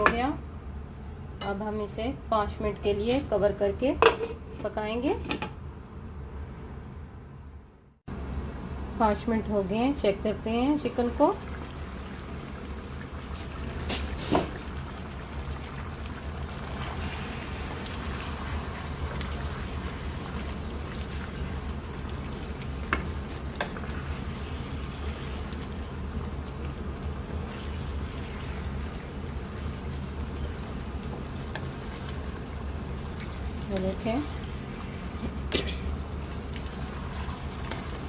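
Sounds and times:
curry simmering and sizzling: 10.8s - 38.0s.

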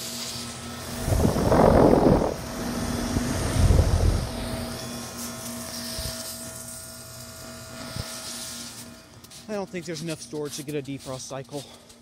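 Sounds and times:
heat pump humming: 0.0s - 10.0s
low rumbling on microphone: 0.9s - 4.8s.

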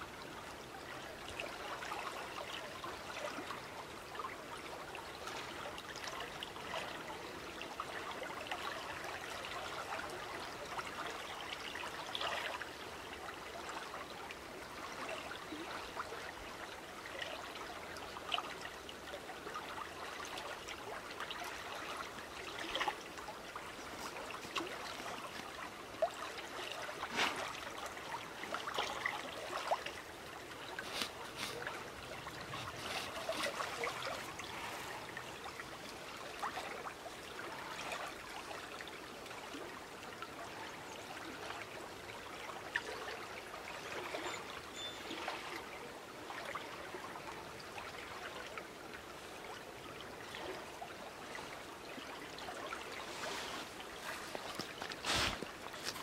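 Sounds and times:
small water splashes: 0.7s - 56.0s
river water rushing: 20.0s - 40.1s.

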